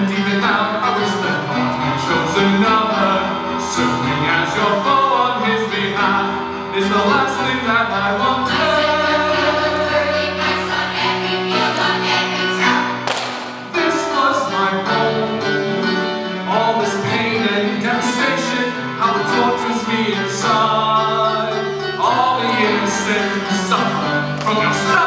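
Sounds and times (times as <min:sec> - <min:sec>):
recorded instrumental accompaniment: 0:00.0 - 0:25.0
children's choir singing: 0:08.4 - 0:25.0.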